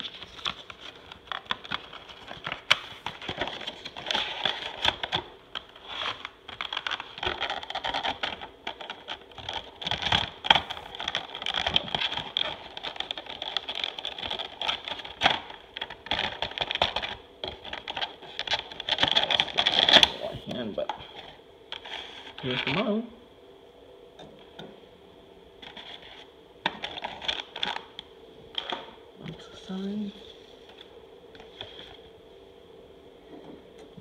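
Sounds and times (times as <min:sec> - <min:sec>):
plastic packaging crackling: 0:00.0 - 0:20.5, 0:21.1 - 0:23.0, 0:25.6 - 0:29.0.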